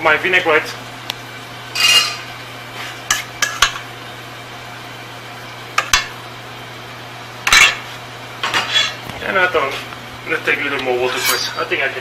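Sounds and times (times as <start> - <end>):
steady low hum: 0.0 - 12.0
spoon clinking against metal bowl: 1.8 - 2.2.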